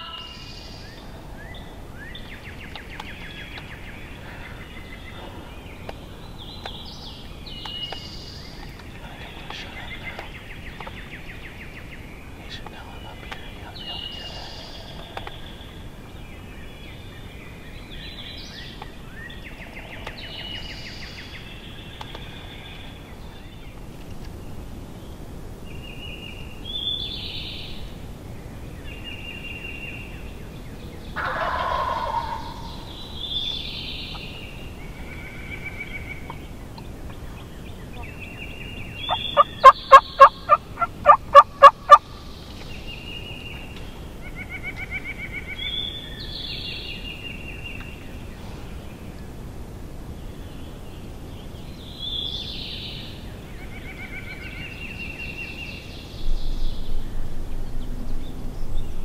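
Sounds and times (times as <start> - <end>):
songbirds chirping: 0.0 - 59.0
wild turkey gobbling: 31.2 - 32.9, 38.8 - 42.1.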